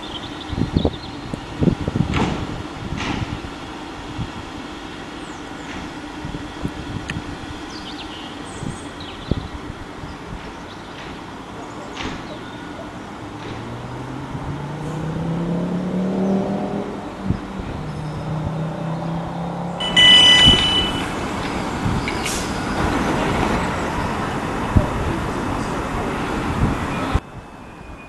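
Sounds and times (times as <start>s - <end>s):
train horn blast: 19.8s - 21.2s
electric train motors whining: 19.8s - 22.9s.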